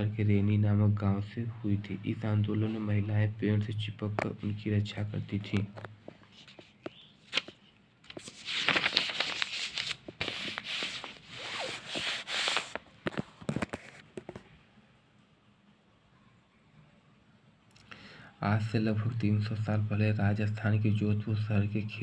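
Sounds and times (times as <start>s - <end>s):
paper pages turning: 5.3s - 14.4s
crackles and taps: 5.5s - 8.2s.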